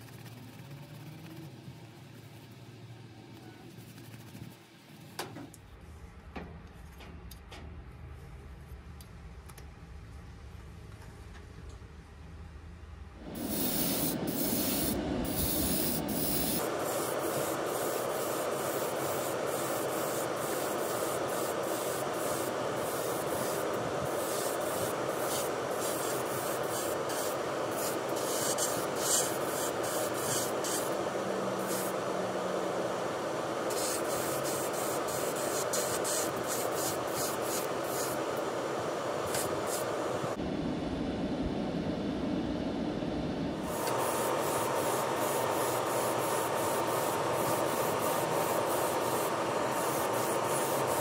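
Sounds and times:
airbrush hissing: 0:13.2 - 0:40.4, 0:43.6 - 0:51.0.

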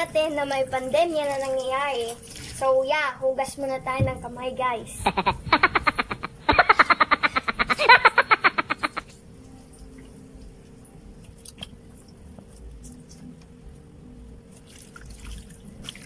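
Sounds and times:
water splashing and dripping: 0:00.3 - 0:02.9, 0:08.9 - 0:13.2, 0:14.5 - 0:16.0
cartoon laughing sound effect: 0:05.0 - 0:09.1.

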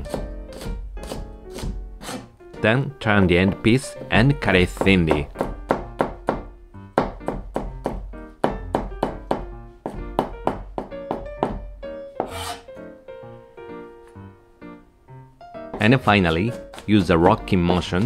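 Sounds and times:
knife slicing onion on cutting board: 0:00.0 - 0:02.3, 0:12.2 - 0:12.7, 0:16.3 - 0:17.3
soft background music: 0:00.0 - 0:18.0
knife scraping board: 0:00.5 - 0:02.3, 0:12.2 - 0:12.7.

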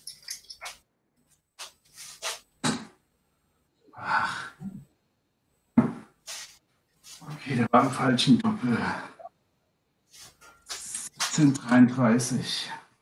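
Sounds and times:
darts striking dartboard: 0:05.8 - 0:06.1.

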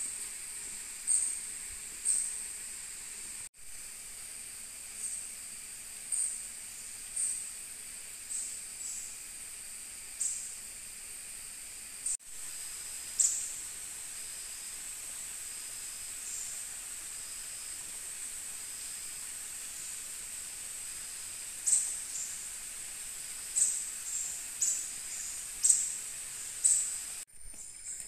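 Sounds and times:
insects high-pitched drone: 0:00.0 - 0:28.0
sharp high insect calls: 0:00.0 - 0:28.0
short evenly spaced peeps: 0:23.4 - 0:28.0.

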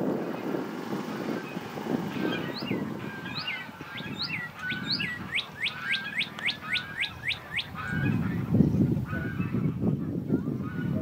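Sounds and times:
songbird whistling: 0:01.4 - 0:08.4.

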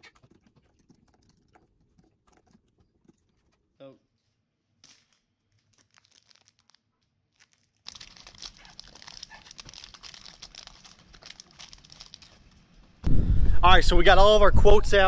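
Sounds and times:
foil wrapper crinkling: 0:04.8 - 0:13.0.

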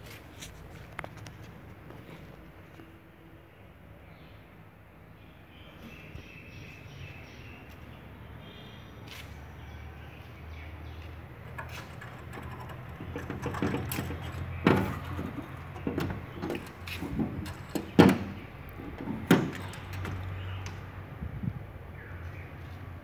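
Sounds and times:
knocks on steel door: 0:12.9 - 0:20.2.

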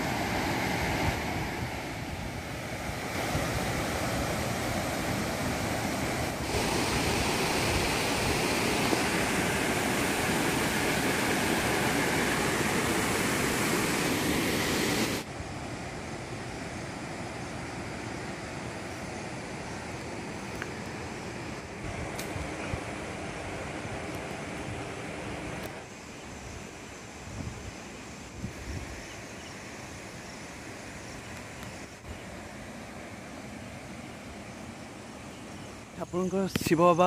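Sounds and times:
waterfall roar: 0:00.0 - 0:16.9.

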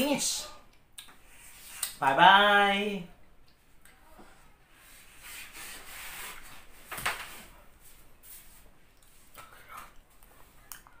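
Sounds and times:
rustling and shuffling: 0:04.1 - 0:10.7.

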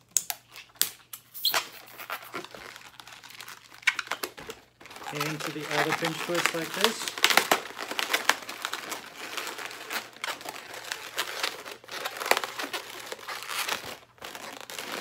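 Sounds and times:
balloons squeaking and rubbing: 0:01.2 - 0:15.0.

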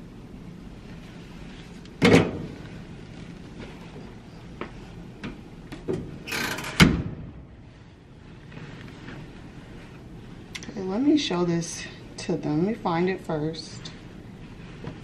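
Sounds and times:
clothes rustling: 0:00.6 - 0:05.9, 0:07.7 - 0:11.8, 0:13.8 - 0:15.0.

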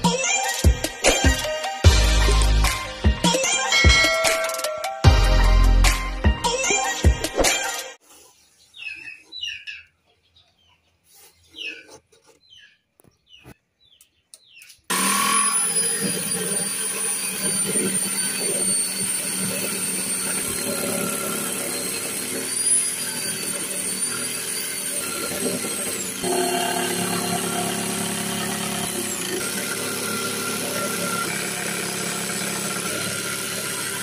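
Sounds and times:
jigsaw motor whine: 0:14.9 - 0:34.0
saw cutting wooden plank: 0:14.9 - 0:34.0.

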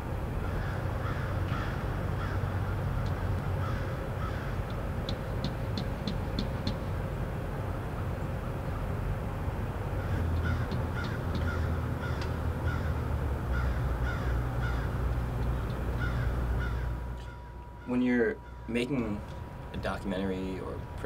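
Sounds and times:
low outdoor rumble: 0:00.0 - 0:21.0
crows cawing: 0:00.4 - 0:05.6, 0:10.0 - 0:18.7.

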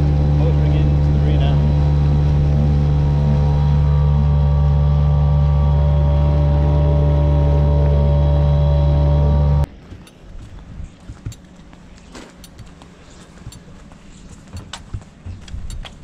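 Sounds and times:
outboard motor running: 0:00.0 - 0:09.7.

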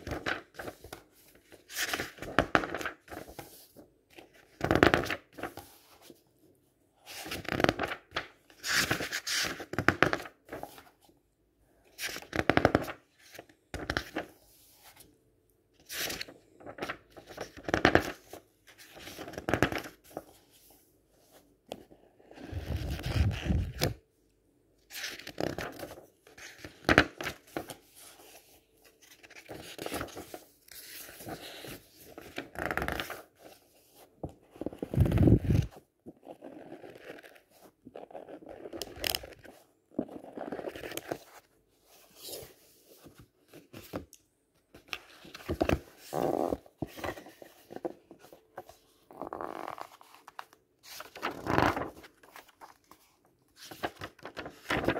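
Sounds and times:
book pages riffling: 0:44.8 - 0:54.9.

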